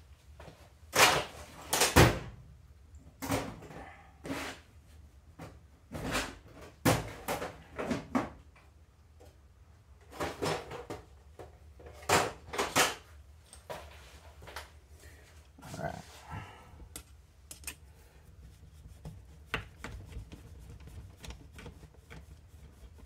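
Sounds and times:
tools and parts clicking and knocking: 0:16.9 - 0:17.8.

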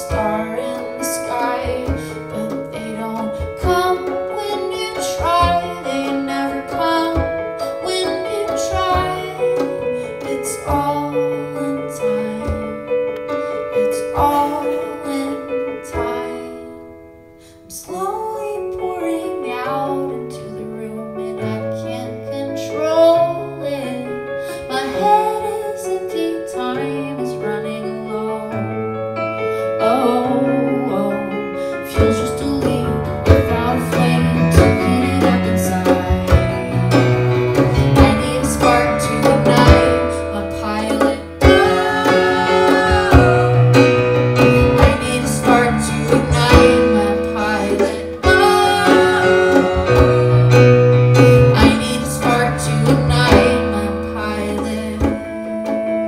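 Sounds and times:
woman singing: 0:00.0 - 0:13.0, 0:13.7 - 0:16.8, 0:17.6 - 0:28.8, 0:29.6 - 0:56.0
electric keyboard chords: 0:21.8 - 0:56.0
plucked strings: 0:32.0 - 0:56.0.

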